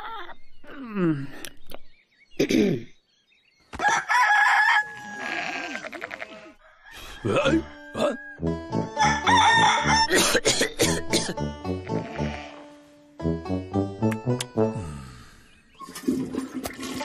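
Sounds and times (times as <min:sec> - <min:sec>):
rooster crowing: 0:03.8 - 0:05.8, 0:06.6 - 0:08.4, 0:09.0 - 0:10.1
music with steady beat: 0:13.2 - 0:14.8.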